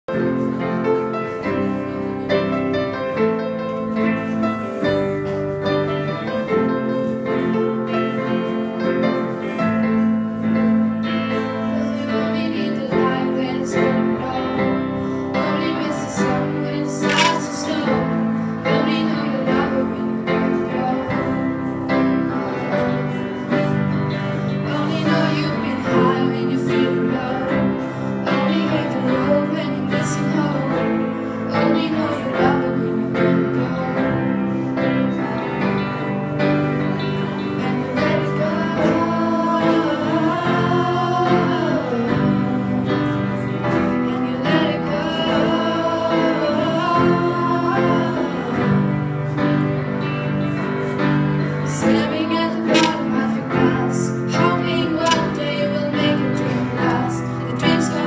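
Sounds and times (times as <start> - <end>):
electric guitar: 0.0 - 58.0
girls singing into microphones: 11.8 - 23.4, 24.6 - 35.6, 37.2 - 49.6, 51.7 - 58.0.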